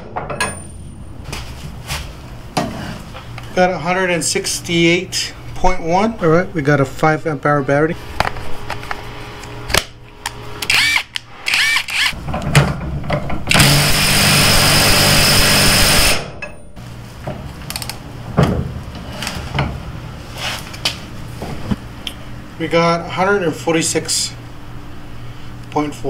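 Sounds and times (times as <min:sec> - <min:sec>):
torque wrench clicks: 0:10.6 - 0:12.2.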